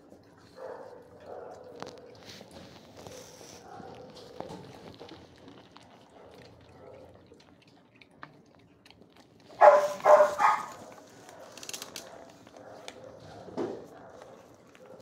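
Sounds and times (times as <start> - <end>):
dog barking: 0.6 - 2.2, 3.6 - 4.3, 9.6 - 15.0.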